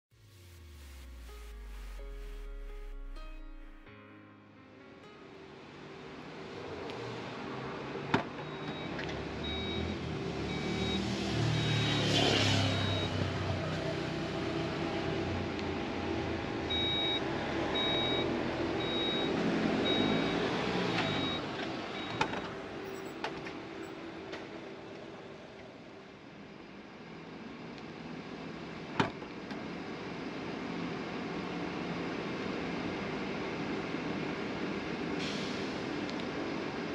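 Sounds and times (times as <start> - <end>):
passing traffic: 5.3 - 28.8
high warning beeps: 11.6 - 13.2, 16.7 - 17.2, 17.8 - 20.4, 21.0 - 23.2.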